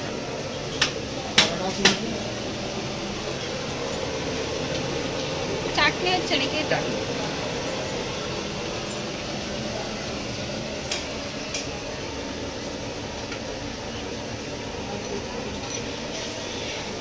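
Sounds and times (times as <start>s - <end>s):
food frying hiss: 0.0s - 17.0s
metal spoon clinks: 15.6s - 15.9s.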